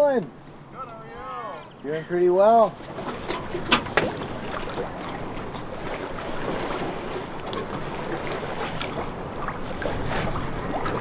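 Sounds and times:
water washing along a hull: 0.3 - 11.0.

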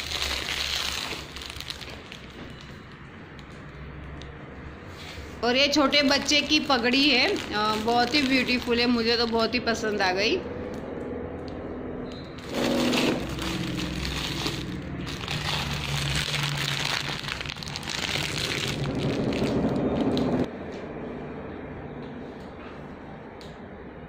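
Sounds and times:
plastic packaging crinkling: 0.0 - 3.0, 5.9 - 9.6, 12.4 - 20.5.

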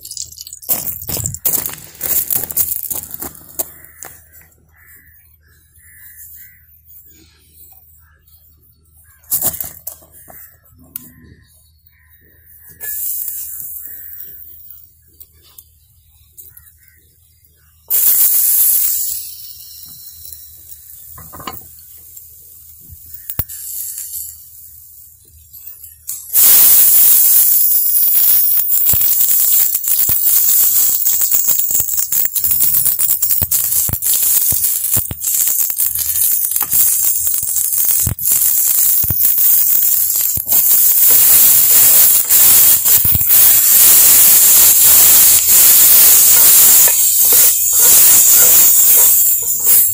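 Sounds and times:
food sizzling in hot oil: 0.0 - 4.9, 12.6 - 14.6, 17.9 - 49.9.

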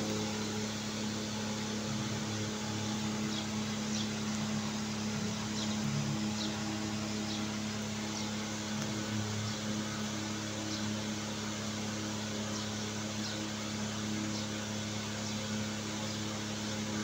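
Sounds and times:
electric motor humming: 0.0 - 12.2.

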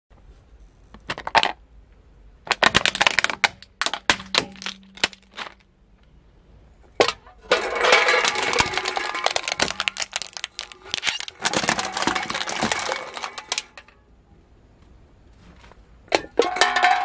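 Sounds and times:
plastic toy cracking under tyre: 2.4 - 5.6, 8.0 - 13.9
drink cans crunching under tyre: 2.5 - 5.7, 7.0 - 14.0.

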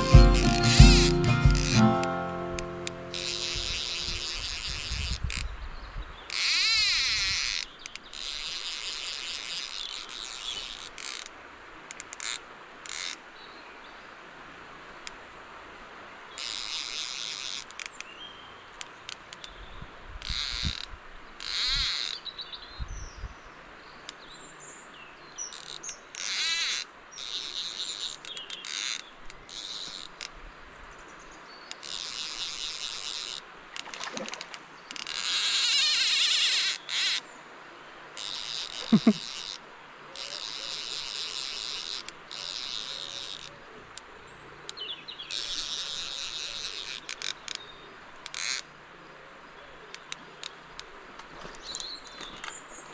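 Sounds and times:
fly reel ratchet buzzing: 3.1 - 4.7.

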